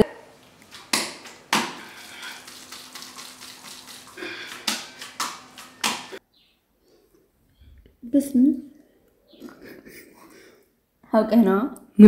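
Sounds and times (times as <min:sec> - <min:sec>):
soft wet slaps of porridge: 0:03.8 - 0:06.2.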